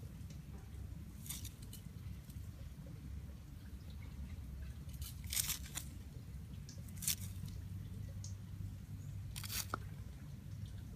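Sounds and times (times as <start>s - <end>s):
trowel scraping into soil: 9.4s - 9.8s.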